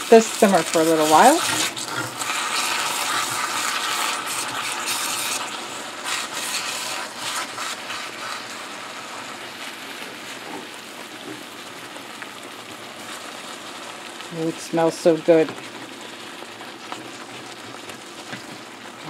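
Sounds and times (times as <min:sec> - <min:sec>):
meat sizzling in a skillet: 0:00.0 - 0:19.0
spatula scraping a skillet: 0:00.1 - 0:10.8.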